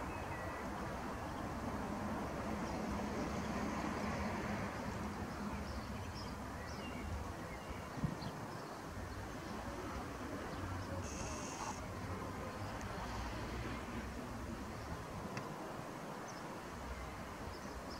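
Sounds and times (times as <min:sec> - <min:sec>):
faint bird chirps: 0:11.0 - 0:11.8.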